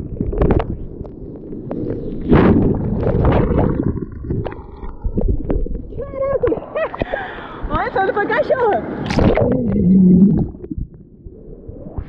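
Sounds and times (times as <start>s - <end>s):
water slapping the microphone: 0.0s - 7.2s, 9.0s - 11.1s.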